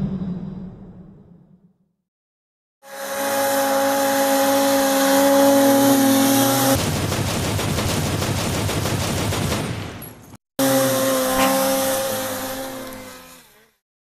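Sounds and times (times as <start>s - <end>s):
snowmobile engine at full throttle: 3.1s - 6.8s, 10.6s - 13.1s.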